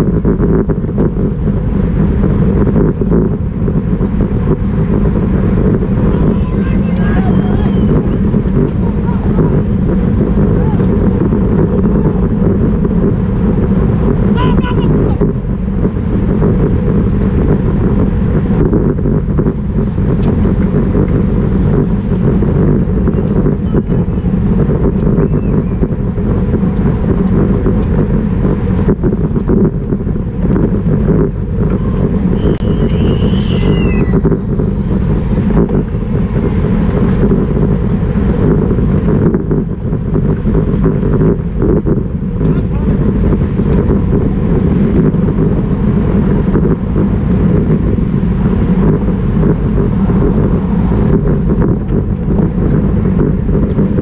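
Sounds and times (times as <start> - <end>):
wind rushing over microphone: 0.0 - 54.0
high-pitched squeal: 31.8 - 34.3.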